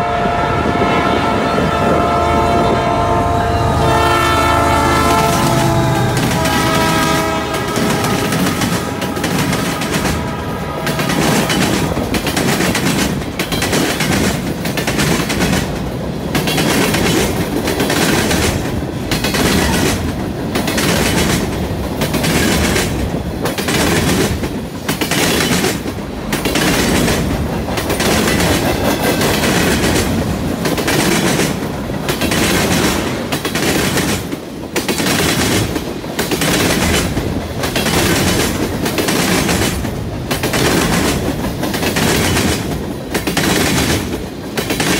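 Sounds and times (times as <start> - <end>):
train horn: 0.0 - 12.0
freight train wheels clacking: 0.0 - 44.9.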